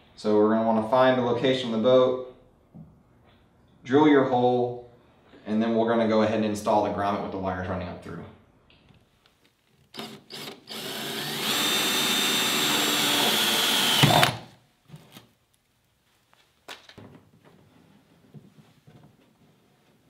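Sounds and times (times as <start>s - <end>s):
cordless drill boring plastic: 9.9s - 15.2s.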